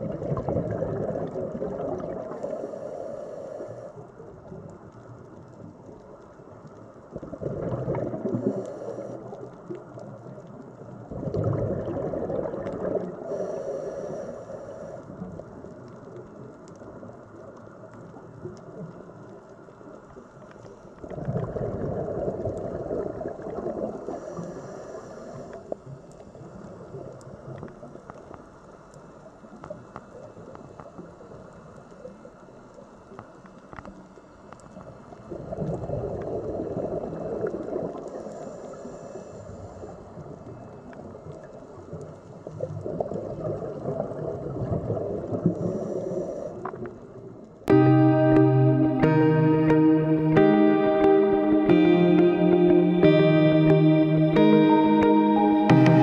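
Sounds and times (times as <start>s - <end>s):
exhaled bubbles gurgling underwater: 0.0s - 20.2s, 21.0s - 28.4s, 34.8s - 38.8s, 39.5s - 47.4s.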